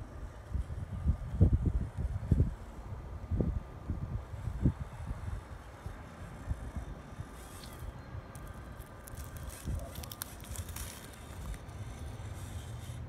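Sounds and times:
small electric motor whine: 0.0s - 13.0s
tyres crackling on rock: 5.8s - 13.0s.

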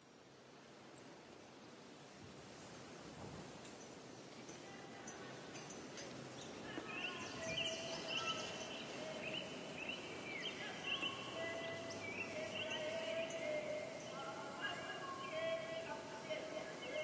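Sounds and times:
steady outdoor hiss: 0.0s - 17.0s
bird chirps and calls: 6.4s - 15.4s.

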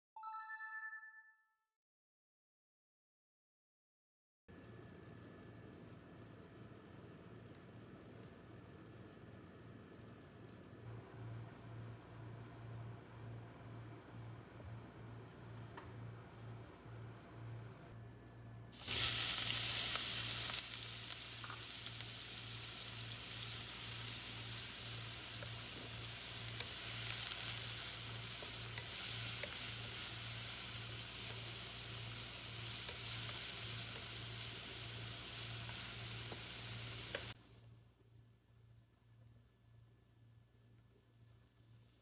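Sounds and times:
onion sizzling in hot oil: 18.8s - 37.4s.

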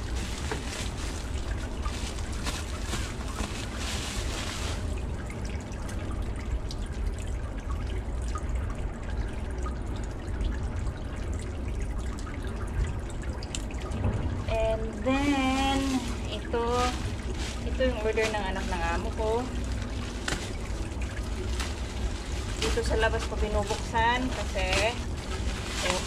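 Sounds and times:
plastic bag crinkling: 0.0s - 5.1s, 15.2s - 26.0s
low steady rumble: 0.0s - 26.0s.

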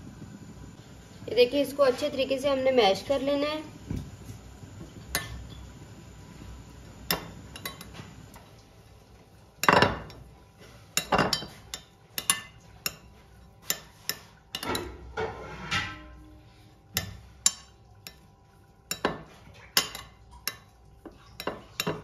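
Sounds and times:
metal spoon scraping glass bowl: 12.2s - 16.2s.

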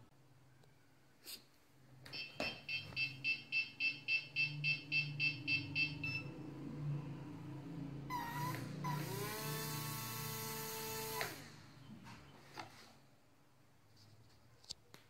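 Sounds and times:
small electric motors whining: 8.1s - 11.5s.

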